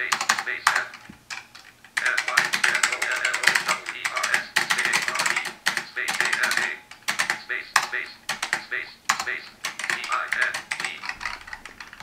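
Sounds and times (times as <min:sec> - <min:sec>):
keyboard keys clicking: 0:00.0 - 0:12.0
synthetic screen-reader voice: 0:02.0 - 0:06.8, 0:07.4 - 0:11.1.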